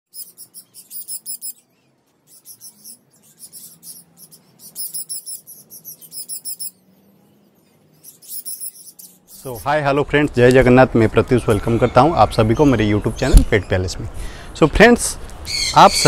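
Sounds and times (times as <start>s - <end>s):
parrots chirping: 0.1s - 9.8s, 15.5s - 16.0s.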